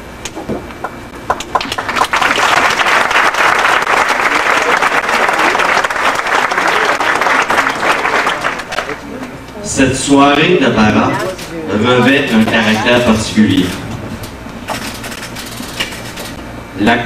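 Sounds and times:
crowd applauding: 1.2 - 9.3.

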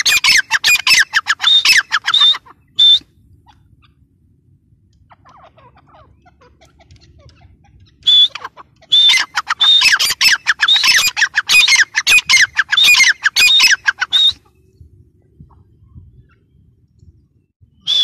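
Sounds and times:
francolin calling loudly: 0.0 - 4.0, 5.1 - 14.6.

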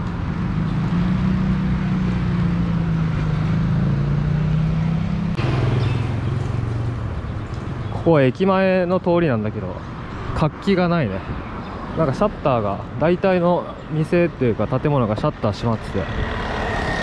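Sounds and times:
engine humming: 0.0 - 8.1.

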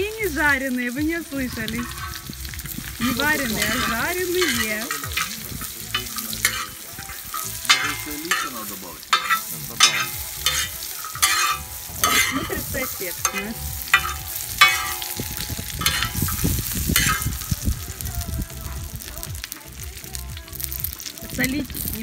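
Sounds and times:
dumplings frying and hissing: 0.0 - 22.0
metal spatula scraping pan: 1.6 - 17.6.

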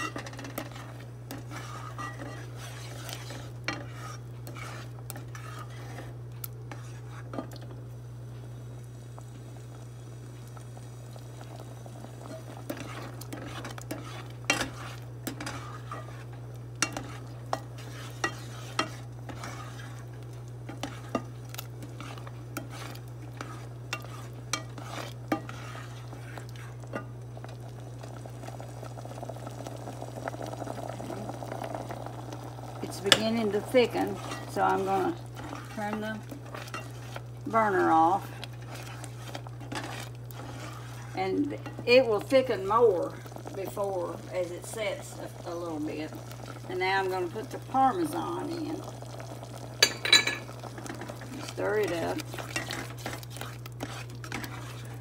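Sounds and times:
spoon stirring sauce: 0.0 - 7.7, 12.3 - 28.1, 32.3 - 43.6, 46.0 - 55.0
steady low hum: 0.0 - 55.0.

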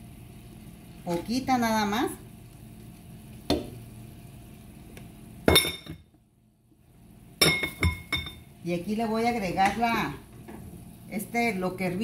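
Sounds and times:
metal pot clinking: 5.5 - 6.0, 7.4 - 8.5.

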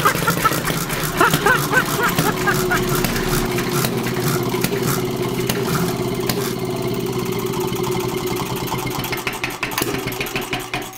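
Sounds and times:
engine idling: 0.0 - 10.9
fast clatter of small clicks: 9.0 - 10.9.

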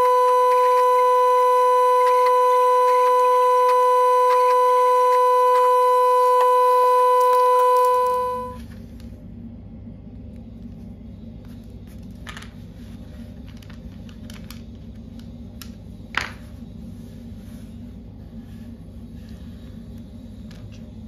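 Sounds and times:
loud electronic tone: 0.0 - 8.6
low steady hum: 0.0 - 21.0.

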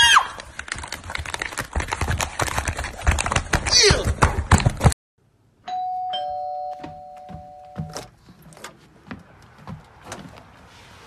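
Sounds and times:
two-tone doorbell chime: 5.7 - 8.1.

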